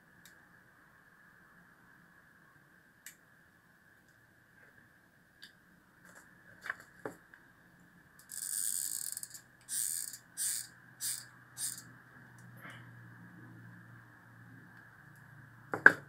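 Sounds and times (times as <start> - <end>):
small parts clicking: 8.2 - 12.5
glue gun feeding scratchily: 8.3 - 11.8.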